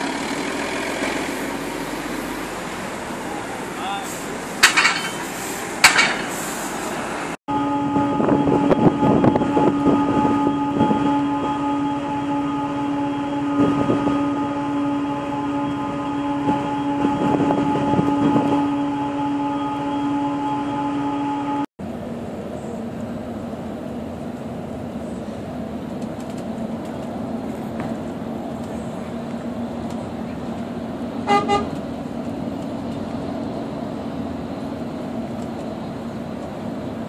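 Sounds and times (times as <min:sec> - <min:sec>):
rushing noise: 0:00.0 - 0:10.4
ferry engine hum: 0:00.0 - 0:37.0
street noise: 0:00.0 - 0:37.0.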